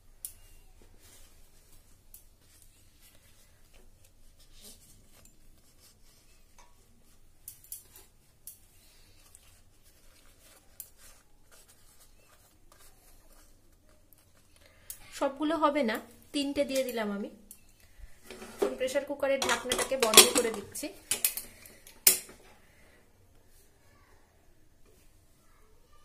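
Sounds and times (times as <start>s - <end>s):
leaf parcels rustling: 0.3s - 14.9s.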